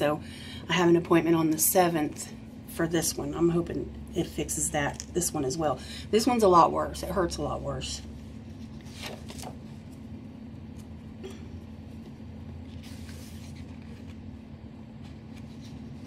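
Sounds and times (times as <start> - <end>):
low background hum: 0.0 - 16.0
paper pages rustling: 8.2 - 10.1, 12.0 - 14.4, 15.0 - 16.0.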